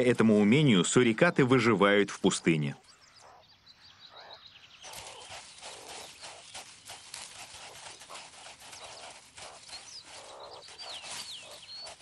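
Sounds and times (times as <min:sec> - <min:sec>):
claws scratching in sand: 0:04.8 - 0:12.0.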